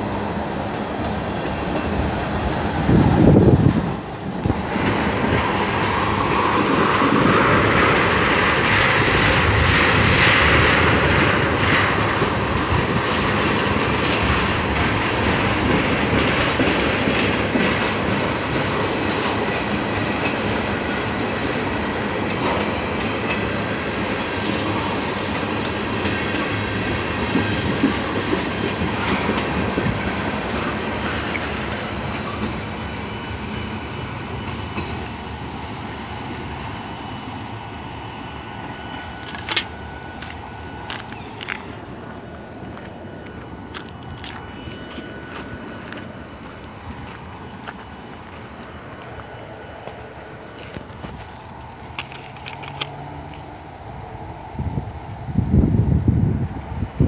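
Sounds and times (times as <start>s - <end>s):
freight train wheels clattering: 0.0s - 53.6s.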